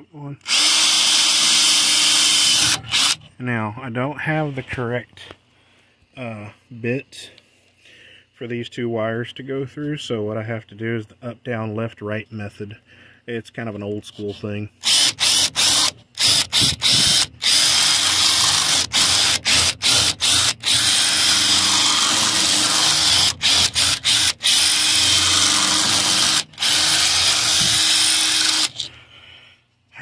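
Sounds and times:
cordless drill boring metal: 0.4s - 3.3s, 14.8s - 28.9s.

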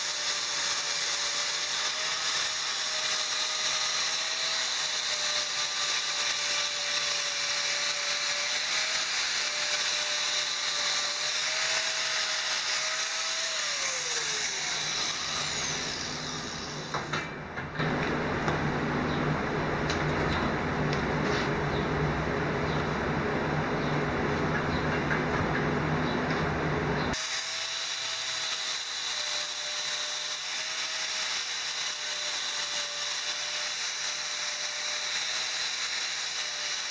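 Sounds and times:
angle grinder whining: 0.0s - 18.0s, 27.1s - 36.9s
hiss of grinding metal: 27.2s - 36.9s.

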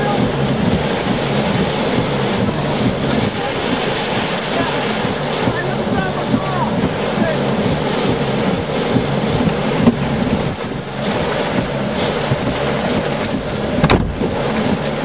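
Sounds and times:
heavy rain on car: 0.0s - 15.0s
low steady hum: 0.0s - 15.0s
strong wind: 0.0s - 15.0s
windshield wiper sweeping: 0.0s - 15.0s
sharp knock: 13.8s - 14.2s.

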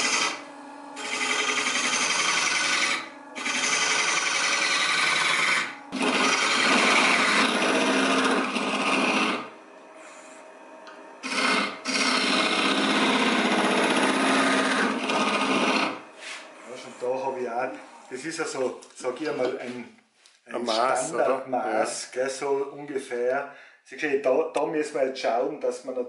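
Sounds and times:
gouge scraping wood on lathe: 0.0s - 0.4s, 1.0s - 10.4s, 11.2s - 18.8s
lathe hum: 0.0s - 19.7s.

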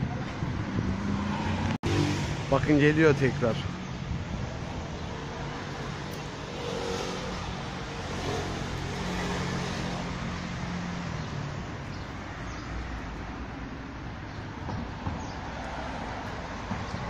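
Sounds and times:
vehicle engine passing by: 0.5s - 3.9s.

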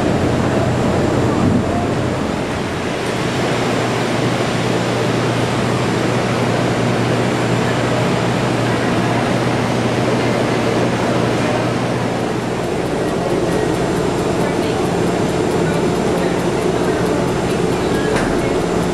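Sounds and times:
low hum: 0.0s - 4.0s, 11.9s - 18.9s
steady rushing noise: 0.0s - 7.4s, 9.5s - 18.9s.

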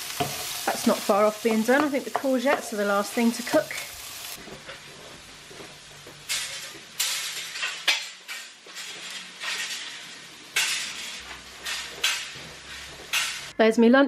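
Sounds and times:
faint frying sizzle: 0.0s - 13.5s.

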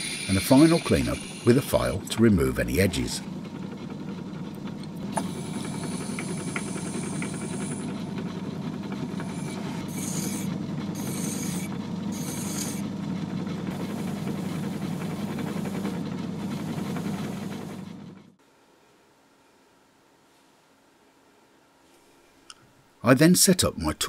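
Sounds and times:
file rasping on brass: 0.0s - 1.6s, 5.2s - 7.9s, 9.2s - 12.8s
reamer high whine: 0.0s - 3.2s
lathe humming: 0.0s - 17.9s.

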